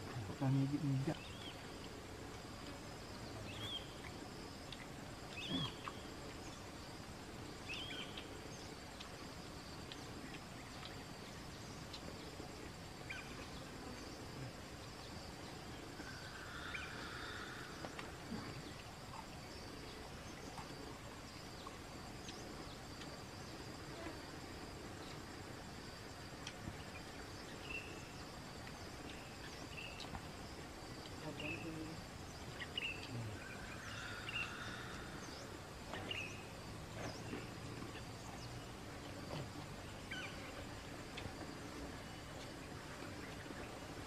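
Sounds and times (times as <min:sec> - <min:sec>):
insects droning: 0:00.0 - 0:44.0.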